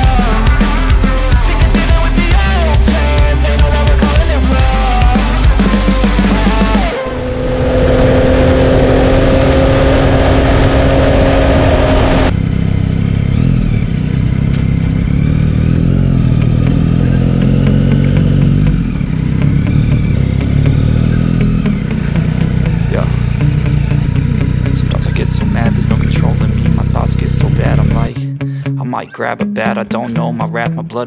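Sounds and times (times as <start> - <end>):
motorcycle engine running: 0.0 - 28.2
loud wind rush: 6.9 - 12.3.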